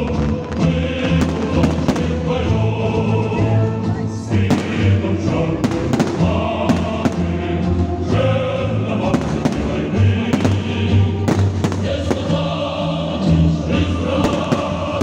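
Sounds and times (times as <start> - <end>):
choral singing: 0.0 - 15.0
fireworks bangs: 1.1 - 2.5, 4.4 - 7.4, 9.1 - 12.6, 14.2 - 15.0.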